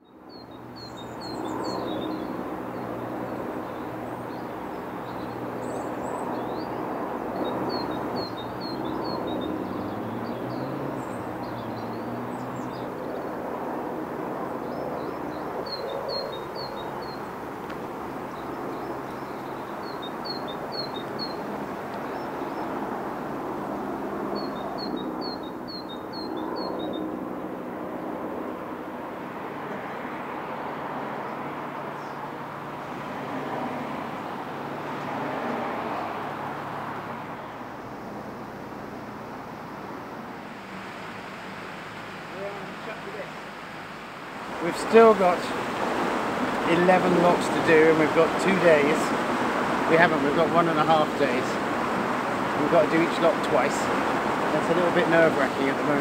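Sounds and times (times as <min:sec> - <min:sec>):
small birds calling: 0:00.0 - 0:27.2, 0:31.2 - 0:33.0, 0:44.5 - 0:56.0.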